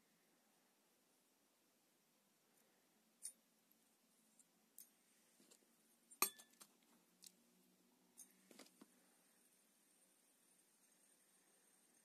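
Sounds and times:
sharp ringing metal clink: 6.2s - 6.6s.

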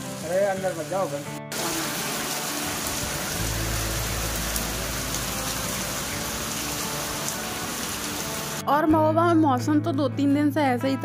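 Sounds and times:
heavy rain pouring: 0.0s - 8.7s.

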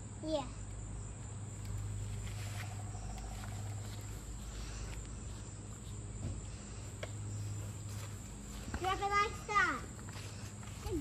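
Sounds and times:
low steady hum: 0.0s - 11.0s
high-pitched insect chorus: 0.2s - 10.6s.

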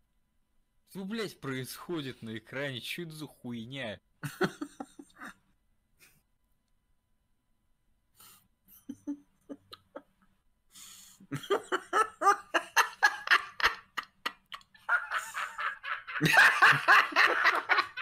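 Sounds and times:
man laughing: 4.2s - 5.4s, 11.2s - 18.0s.

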